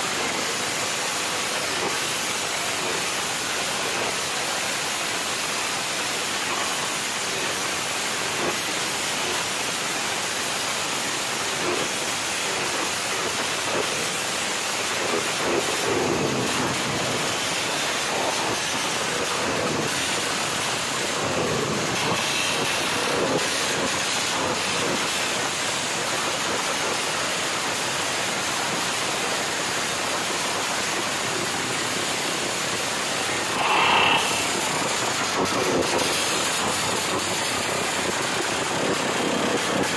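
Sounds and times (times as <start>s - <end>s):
loud motorcycle engine: 33.3s - 39.9s.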